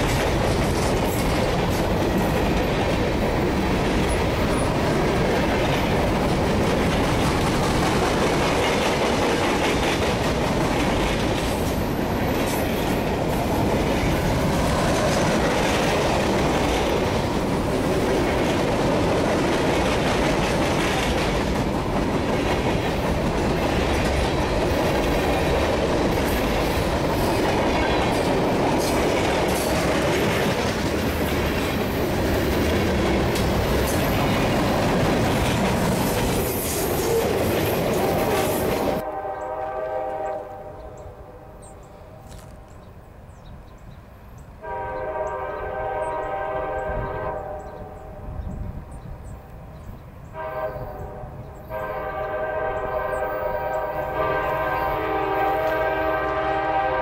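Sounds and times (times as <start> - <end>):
clickety-clack of rail joints: 0.0 - 41.0
train wheels rumbling on rails: 0.0 - 41.0, 41.9 - 57.0.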